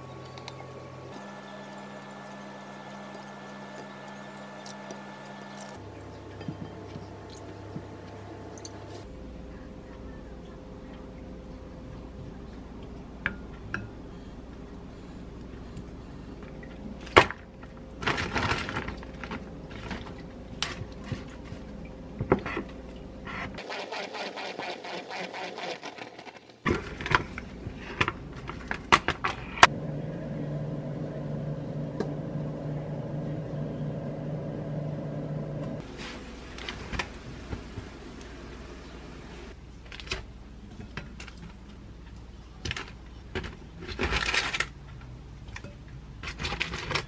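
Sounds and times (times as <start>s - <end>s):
salad spinner whirring: 1.1s - 5.8s, 23.6s - 26.6s.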